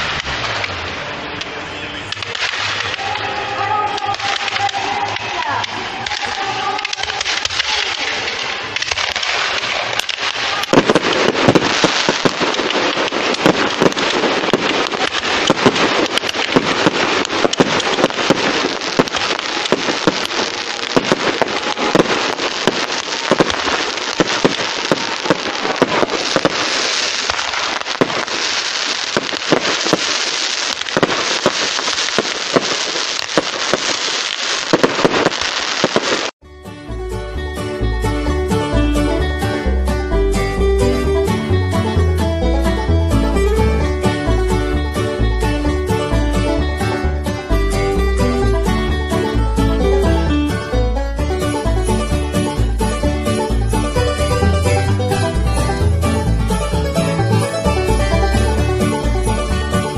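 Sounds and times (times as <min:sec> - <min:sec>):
fireworks crackling and banging: 0:00.0 - 0:36.4.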